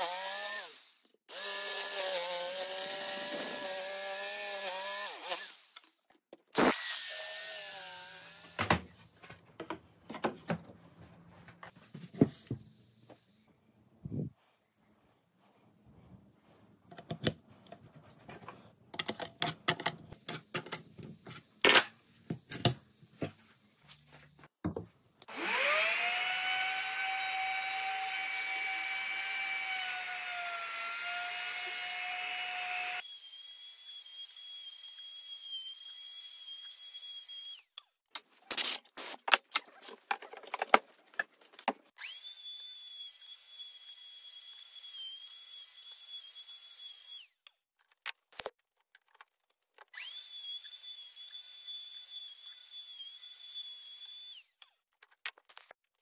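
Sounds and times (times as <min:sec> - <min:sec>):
metal parts clicking and tapping: 0:16.9 - 0:21.9
router whining at high speed: 0:25.3 - 0:37.6, 0:50.0 - 0:54.5.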